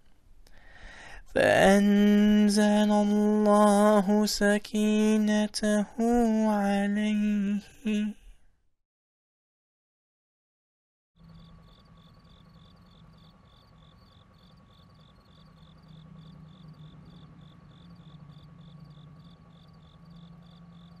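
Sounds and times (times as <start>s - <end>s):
insect chirping: 11.2s - 21.0s
low steady hum: 11.2s - 21.0s
thin steady whine: 11.2s - 21.0s.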